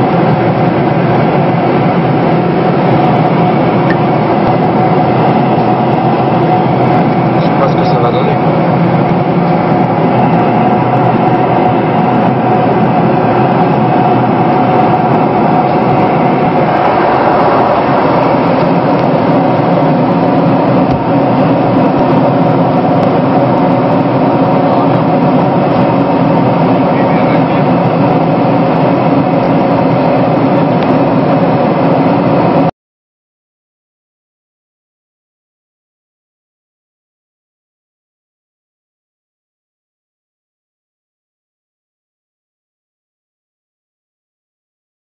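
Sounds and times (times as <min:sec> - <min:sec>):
jet engines droning: 0:00.0 - 0:32.7.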